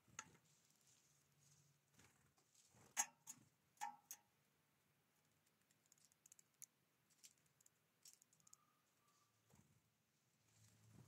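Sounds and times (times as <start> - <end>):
bird pecking clicks: 5.6 - 6.7.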